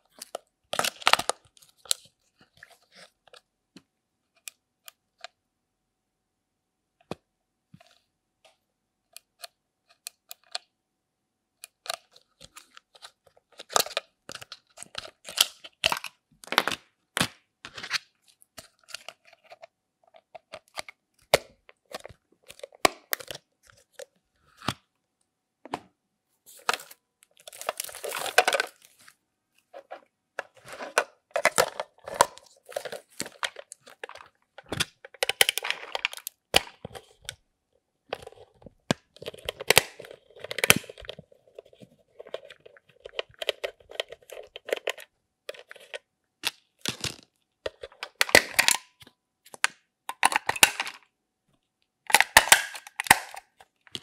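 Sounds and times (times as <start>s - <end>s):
plastic scraping and rustling: 26.5s - 37.4s, 38.1s - 46.1s.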